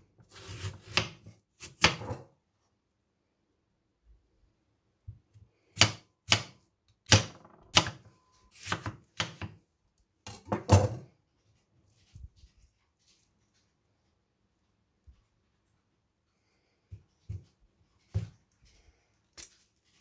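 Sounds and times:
knife cutting potato on board: 0.2s - 2.3s, 5.6s - 9.6s.

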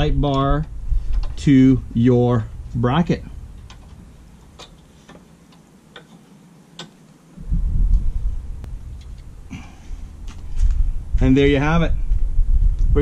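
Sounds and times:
low rumble: 0.0s - 4.3s, 7.4s - 13.0s.

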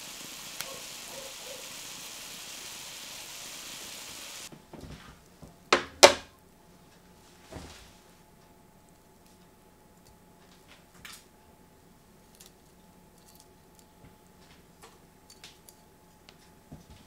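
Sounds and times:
food sizzling in a pan: 0.0s - 4.5s.

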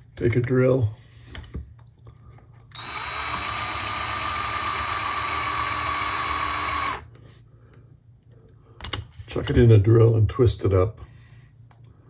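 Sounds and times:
electric drill motor running: 2.7s - 7.1s.

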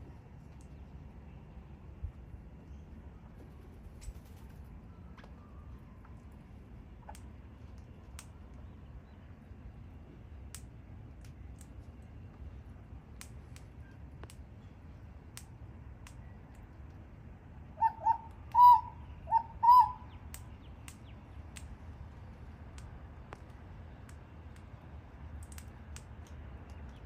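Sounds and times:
parrot calls: 17.8s - 20.1s
faint clicks: 20.3s - 27.0s.

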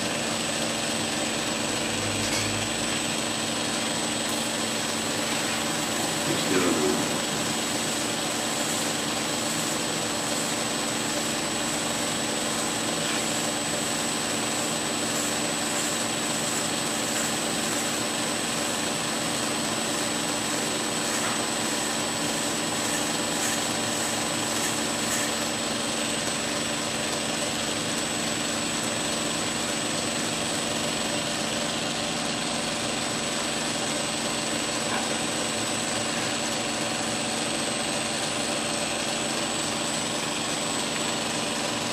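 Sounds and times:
steel blade grinding on belt: 21.0s - 25.5s.

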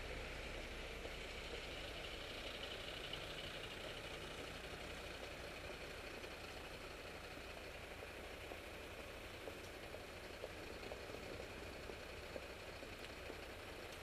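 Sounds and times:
city street traffic: 0.0s - 14.0s.

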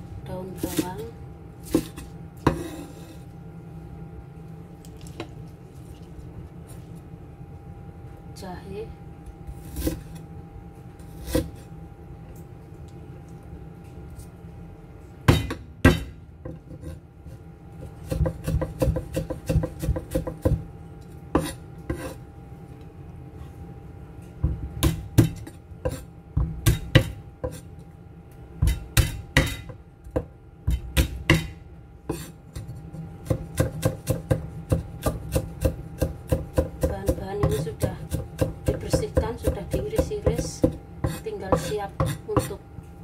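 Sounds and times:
cleaver chopping on wooden board: 18.1s - 20.6s, 28.6s - 31.6s, 33.2s - 42.6s.

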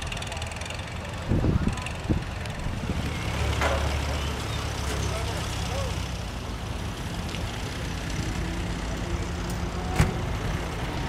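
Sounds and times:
low engine rumble: 0.0s - 11.0s
wind buffeting microphone: 1.1s - 3.3s.

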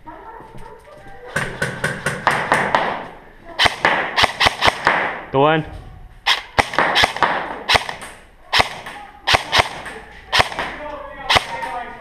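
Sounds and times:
airsoft gun shots with echo: 1.5s - 5.3s, 6.3s - 11.8s.

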